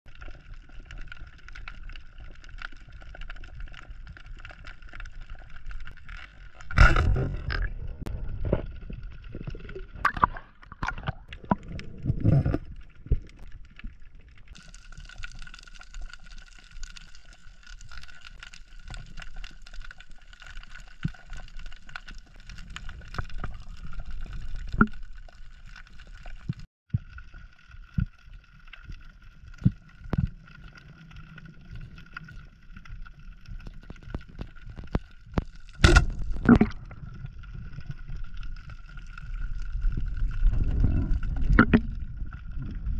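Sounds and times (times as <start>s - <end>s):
water gurgling underwater: 2.8s - 17.2s, 20.9s - 27.1s, 29.5s - 42.9s.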